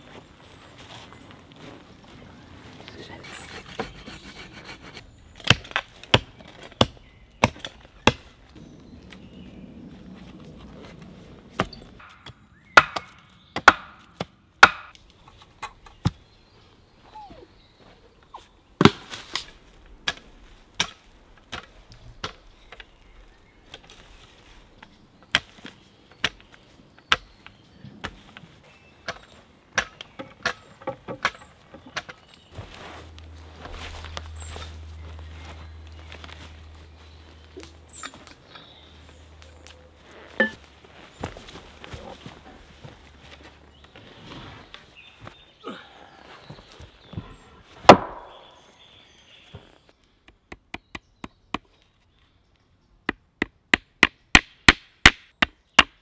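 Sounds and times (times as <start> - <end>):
wooden logs knocking: 11.6 - 14.9, 29.8 - 32.2.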